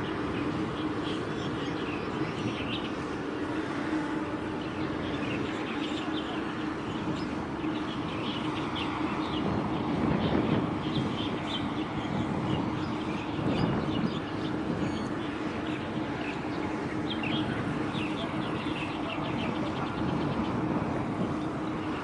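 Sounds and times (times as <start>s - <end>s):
low mechanical drone: 0.0s - 22.0s
small birds chirping: 0.0s - 22.0s.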